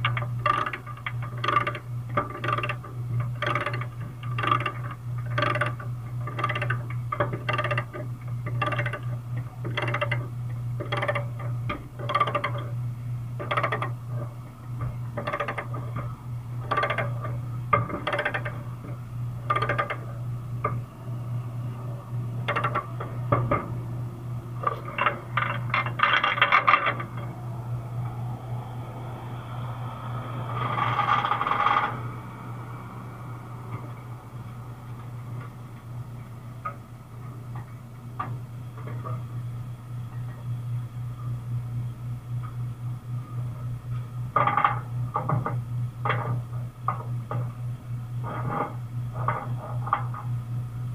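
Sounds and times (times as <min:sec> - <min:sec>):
steady low hum: 0:00.0 - 0:50.9
rasping metal noise: 0:24.5 - 0:35.6, 0:48.2 - 0:50.3.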